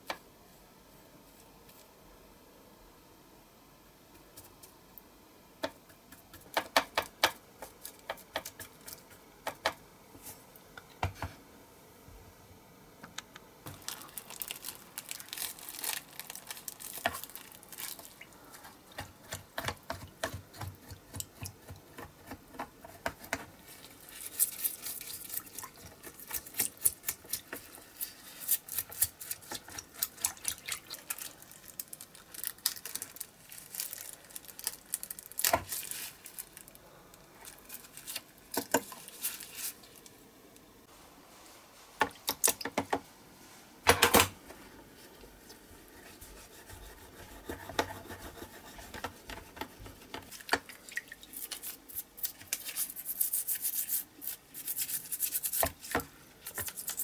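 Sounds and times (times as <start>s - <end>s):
toothbrush scrubbing metal: 51.3s - 57.0s.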